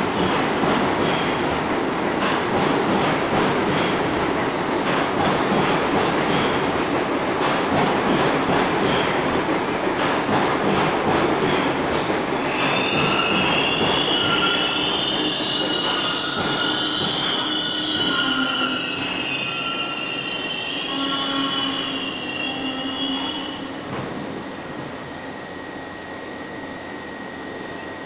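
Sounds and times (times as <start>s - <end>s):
subway train pulling out: 0.0s - 28.0s
high wavering squeal: 12.5s - 23.6s.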